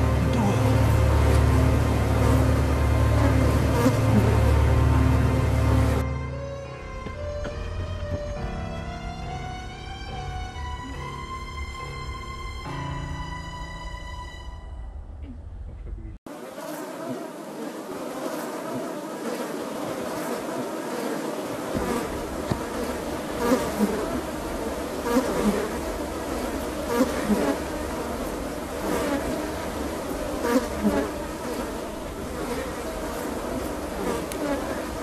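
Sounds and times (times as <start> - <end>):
insect swarm buzzing: 0.0 - 6.0, 16.3 - 35.0.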